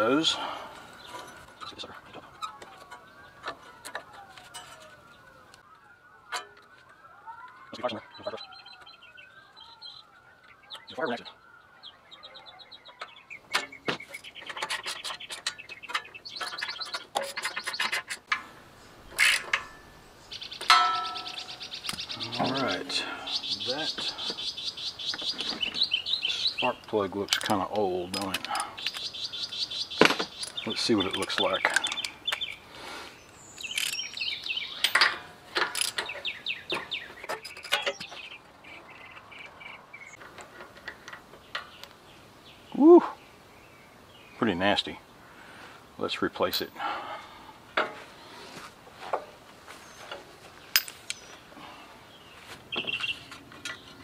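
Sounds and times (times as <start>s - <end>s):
birds chirping: 0.0s - 54.0s
scraping and rubbing: 14.0s - 18.4s
sharp metal clicks: 26.6s - 32.6s.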